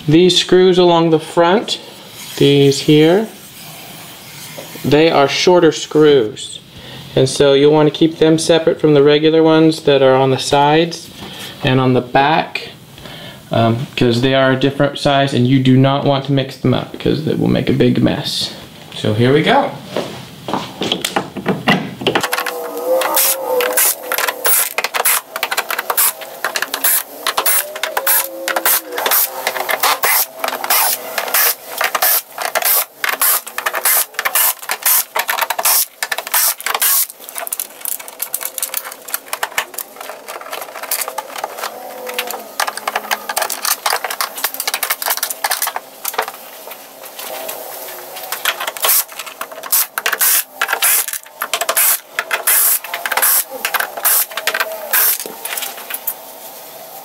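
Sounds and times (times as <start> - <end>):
screws clicking: 22.2 - 46.3, 48.3 - 55.6
cordless drill motor whine: 22.3 - 35.0, 35.6 - 37.1, 51.8 - 55.4.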